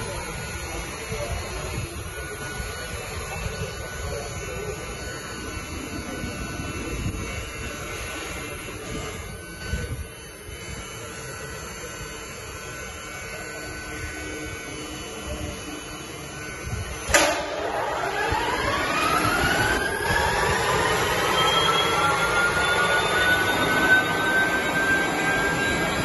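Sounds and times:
electrical buzz and hum: 0.0 - 26.0
short bump: 17.1 - 17.9.

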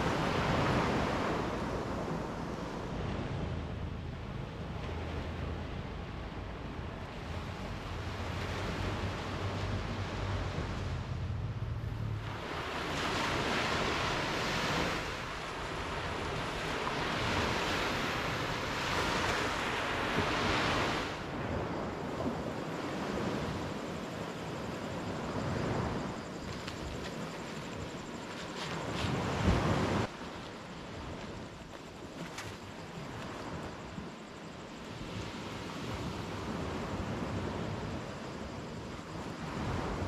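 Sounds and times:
ocean waves washing in: 0.0 - 40.0
low rumble: 2.8 - 13.0.

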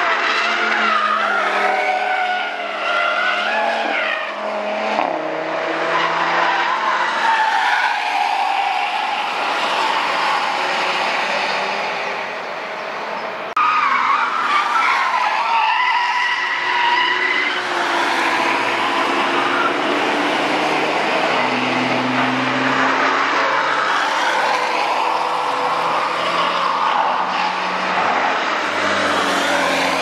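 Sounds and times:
cars passing: 0.0 - 30.0.

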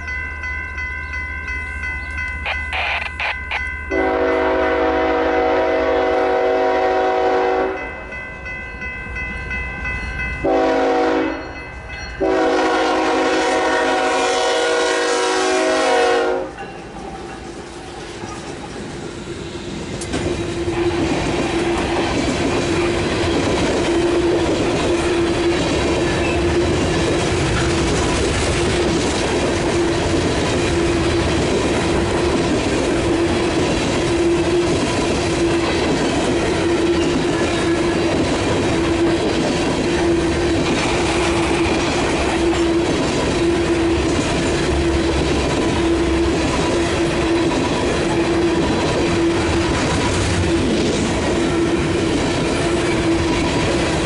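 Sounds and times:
locomotive horn blasts: 3.9 - 7.9, 10.4 - 11.4, 12.2 - 16.6
train cars clickety-clack: 11.9 - 54.0.

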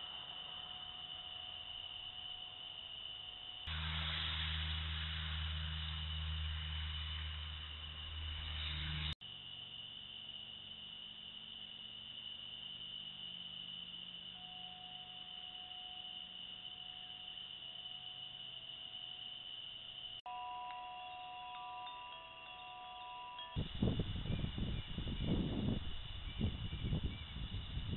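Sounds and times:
night insects chorus: 0.0 - 27.9
low hum: 3.5 - 9.2.

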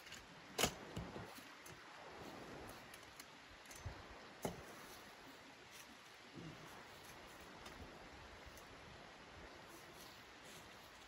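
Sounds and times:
camp chair frame clicks and knocks: 0.0 - 1.8
faint steady hiss: 0.0 - 11.0.

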